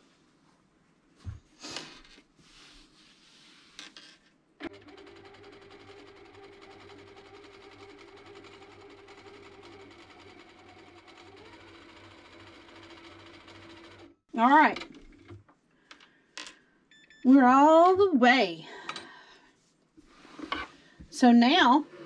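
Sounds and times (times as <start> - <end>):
sewing machine stitching: 4.6 - 15.3.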